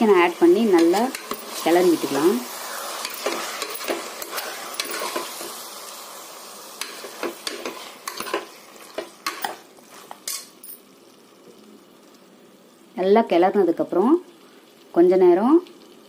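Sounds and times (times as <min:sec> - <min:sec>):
chicken sizzling in hot oil: 0:00.0 - 0:16.0
steel spoon scraping a pot: 0:00.7 - 0:05.6, 0:06.8 - 0:10.6.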